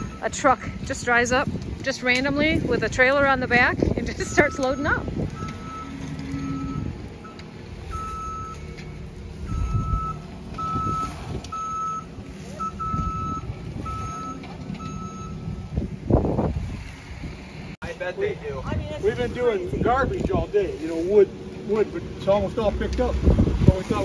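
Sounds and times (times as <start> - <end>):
reversing alarm beeping: 0.0 - 0.7, 4.1 - 15.8
engine rumble: 0.0 - 24.0.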